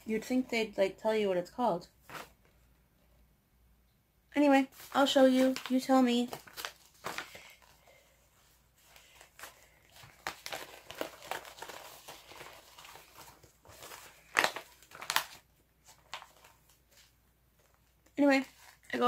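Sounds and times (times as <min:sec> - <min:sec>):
packaging crinkling and rustling: 0:04.7 - 0:07.9, 0:08.8 - 0:19.0.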